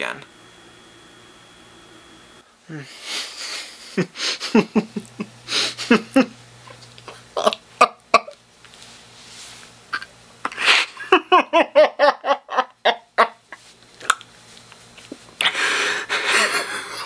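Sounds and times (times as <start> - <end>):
man laughing maniacally: 2.7 - 6.4, 10.5 - 13.6, 15.5 - 17.0.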